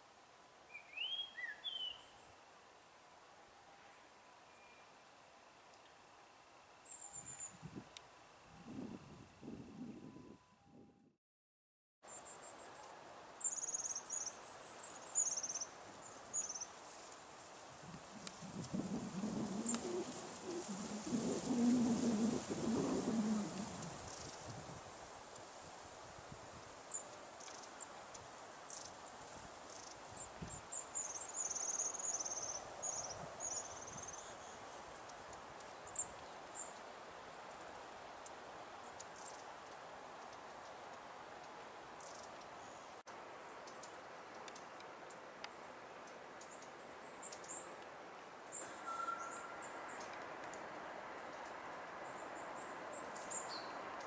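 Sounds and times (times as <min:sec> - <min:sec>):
long-tailed tits calling: 0:00.7 - 0:02.3, 0:12.1 - 0:17.2, 0:18.0 - 0:24.4, 0:29.7 - 0:36.9, 0:38.2 - 0:40.8, 0:42.0 - 0:53.8
faint steady rushing noise: 0:12.1 - 0:54.0
high thin bird calls: 0:48.5 - 0:50.0.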